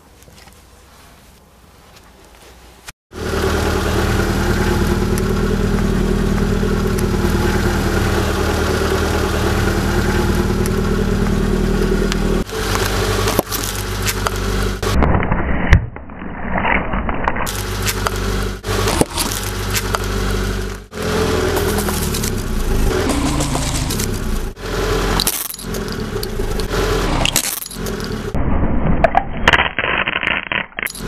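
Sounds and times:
car engine running: 3.1 - 15.1, 17.5 - 28.4
tyre crushing objects: 17.5 - 20.8.

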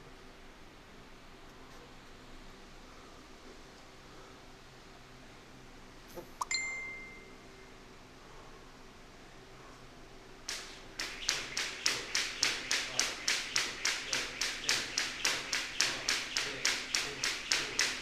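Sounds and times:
jump rope slapping floor: 10.5 - 18.0.

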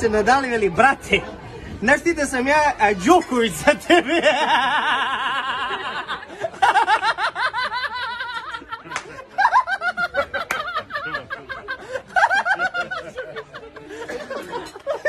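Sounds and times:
men laughing hard: 3.9 - 15.0.

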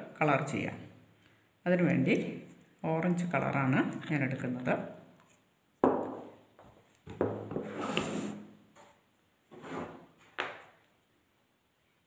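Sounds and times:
plastic jar knocking: 5.8 - 6.4, 7.1 - 7.7.

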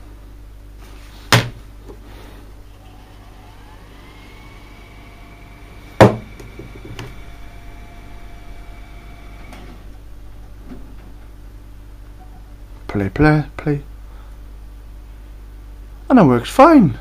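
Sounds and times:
low steady hum: 0.0 - 17.0
tape spooling whine: 2.6 - 11.3.

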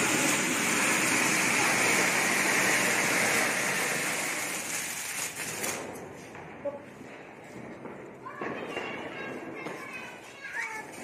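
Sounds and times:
firework fountain hissing: 0.0 - 11.0.

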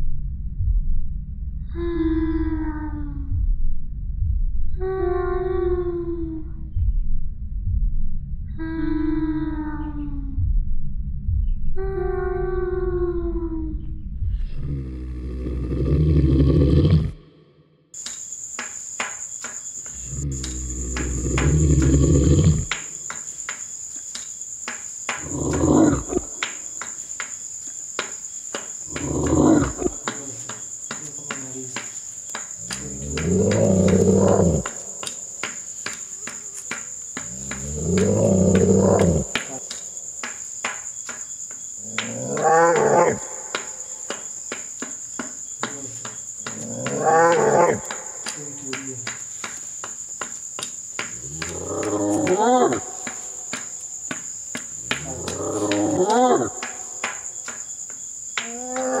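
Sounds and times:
low voice-like moan: 1.7 - 3.3, 8.6 - 10.4, 11.8 - 17.2, 20.0 - 22.8, 32.7 - 34.8, 37.4 - 39.7, 58.4 - 59.0
shrill cricket trill: 14.7 - 59.0.

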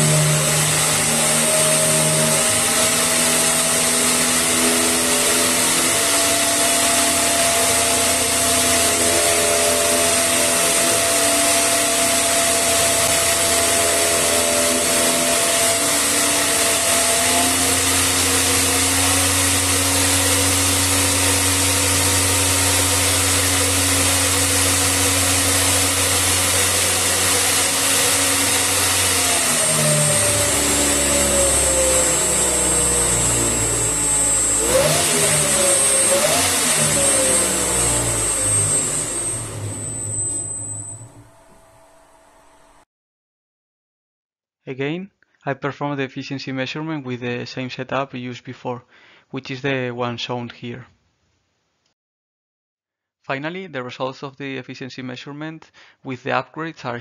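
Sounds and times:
electric motor whine: 0.0 - 42.8.

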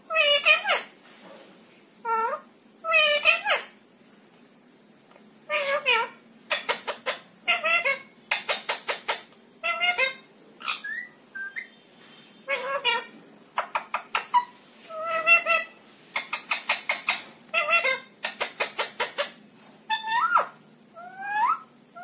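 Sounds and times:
parakeet chattering: 0.1 - 0.9, 2.0 - 3.8, 5.5 - 11.8, 12.4 - 22.0.

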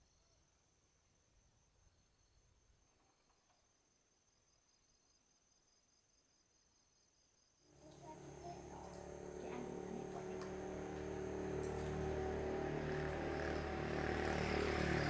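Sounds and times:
motor engine running: 7.8 - 15.0.

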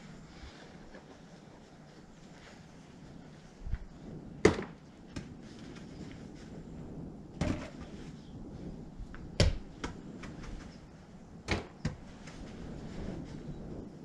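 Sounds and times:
soft balls thumping against wall: 4.4 - 5.4, 7.4 - 8.0, 9.1 - 10.7, 11.4 - 12.4.

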